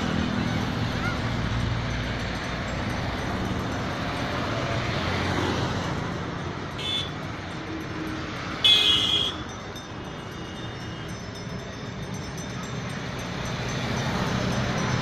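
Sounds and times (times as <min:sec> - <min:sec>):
cars moving: 0:00.0 - 0:15.0
loud horn honk: 0:06.8 - 0:07.2, 0:08.6 - 0:09.4
short vehicle horn beep: 0:06.8 - 0:07.2, 0:08.6 - 0:09.4.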